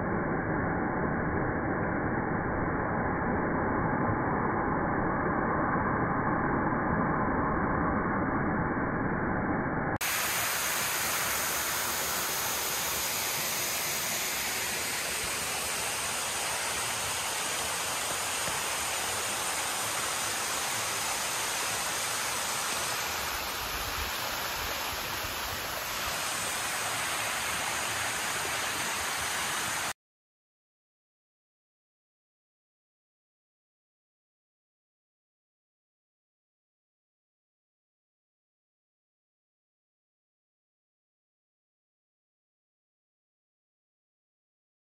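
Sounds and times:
waterfall rushing: 0:10.0 - 0:29.9.

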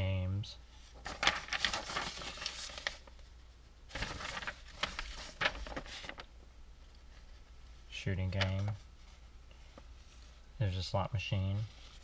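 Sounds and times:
paper rustling: 0:00.9 - 0:03.3, 0:03.9 - 0:06.3, 0:08.2 - 0:10.4, 0:11.5 - 0:12.0.

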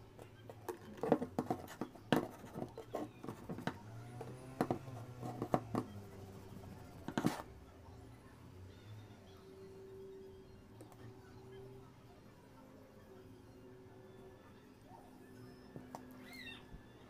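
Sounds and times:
iron knocking and scratching on cloth: 0:00.8 - 0:06.0.

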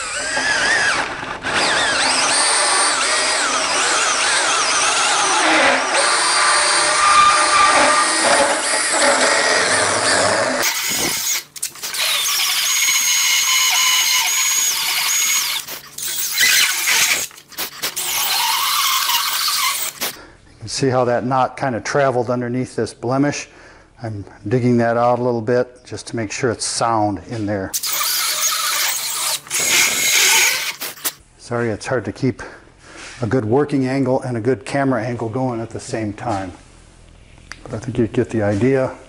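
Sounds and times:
rotary tool grinding wood: 0:00.0 - 0:20.2, 0:27.7 - 0:31.2.

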